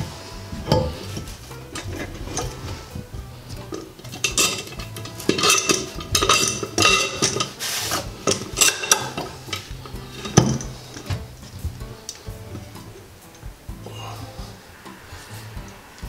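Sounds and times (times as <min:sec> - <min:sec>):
metal clamp clinking and rattling: 0:03.6 - 0:11.6.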